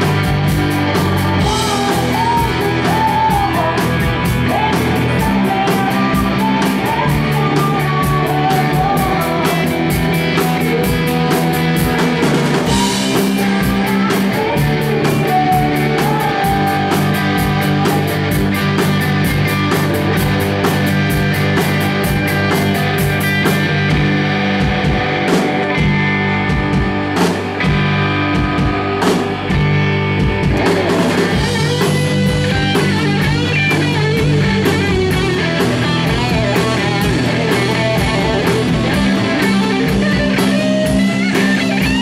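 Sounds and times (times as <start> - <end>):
drum kit beat: 0.0 - 42.0
electric bass: 0.0 - 42.0
electric guitars: 0.0 - 42.0
woman singing: 0.9 - 18.5.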